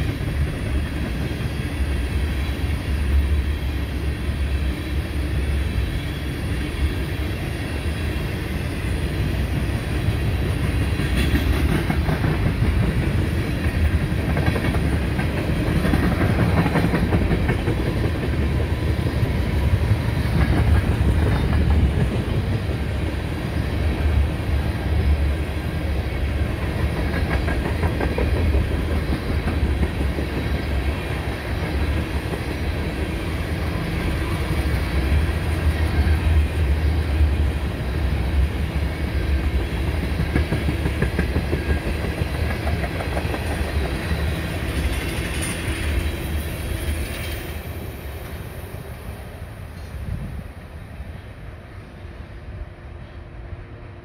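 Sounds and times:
train wheels clattering: 7.9s - 36.4s, 39.2s - 47.9s.

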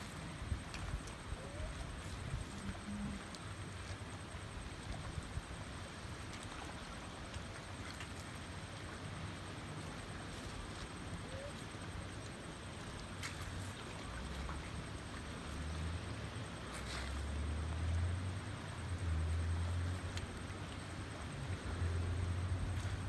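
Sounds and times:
wind rumbling on microphone: 0.4s - 3.3s.

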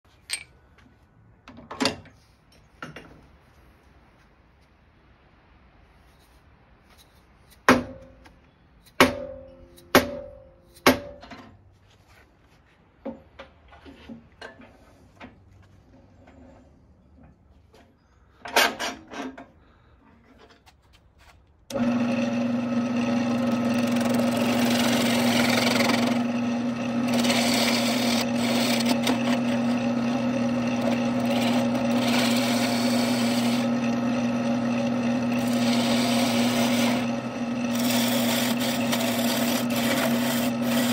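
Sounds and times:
hammer striking steel: 8.9s - 11.2s
gouge cutting wood: 21.7s - 40.9s
wood lathe humming: 21.7s - 40.9s.

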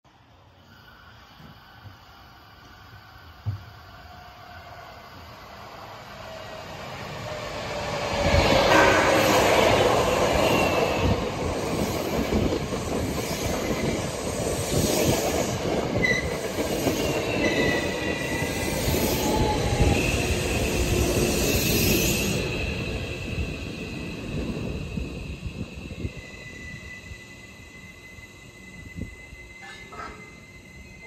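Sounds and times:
train wheels rumbling on rails: 6.2s - 31.0s
high wheel squeals: 10.1s - 31.0s.

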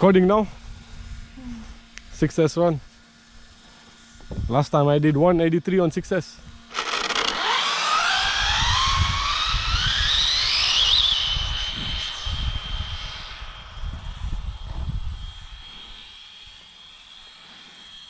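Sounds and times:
electric motor whine: 0.0s - 18.0s.

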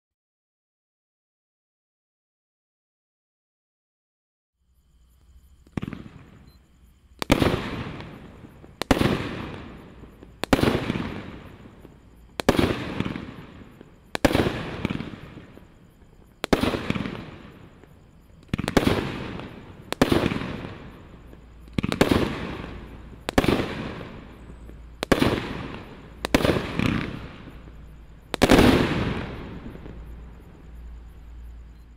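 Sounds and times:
firework cake bangs: 7.2s - 15.7s, 18.4s - 30.1s.

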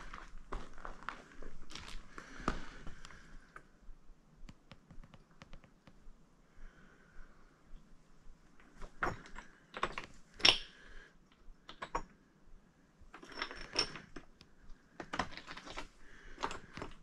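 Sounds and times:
footsteps crunching on gravel: 0.0s - 2.8s.

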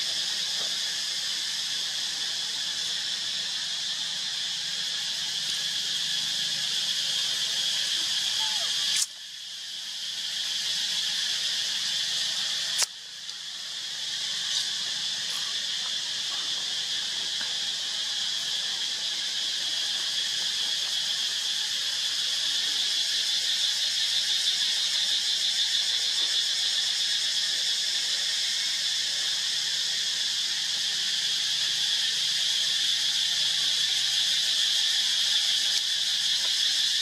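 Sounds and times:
insects droning: 0.0s - 37.0s
sharp click: 12.8s - 13.0s.

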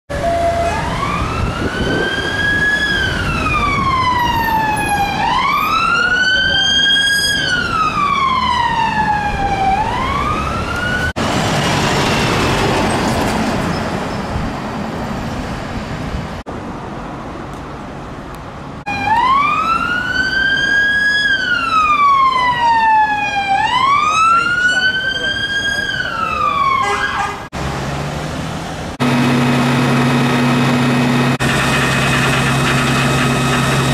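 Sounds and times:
police siren wailing: 0.1s - 11.2s, 18.9s - 27.4s
fire engine passing: 0.1s - 33.9s.

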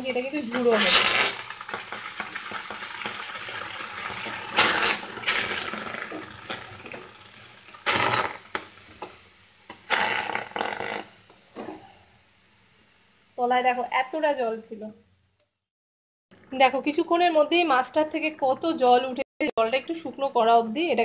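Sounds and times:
wet fish hissing in hot pan: 0.1s - 13.4s.

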